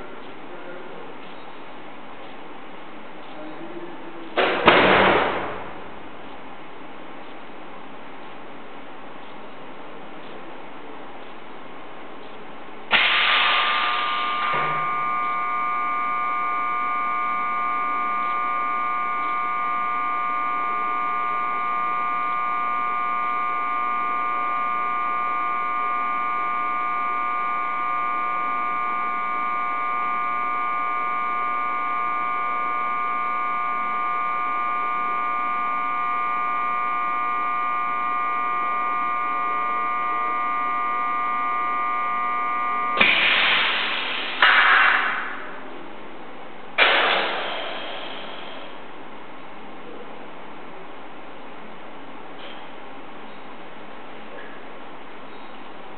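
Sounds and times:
hum of held tones: 11.2 - 55.9.

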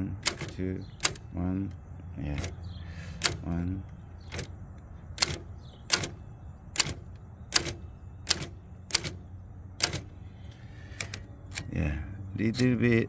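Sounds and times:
typewriter key strikes: 0.2 - 1.3, 2.4 - 2.6, 3.2 - 3.5, 4.3 - 4.5, 5.2 - 6.2, 6.8 - 9.2, 9.8 - 10.1.

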